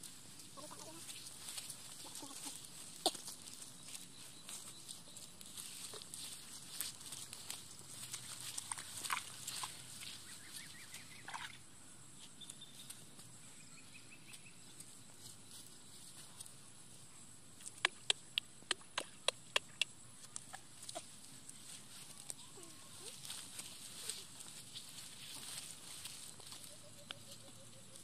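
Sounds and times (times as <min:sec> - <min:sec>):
rustling: 0:00.0 - 0:10.8, 0:20.2 - 0:28.0
sharp clicks: 0:17.6 - 0:20.5.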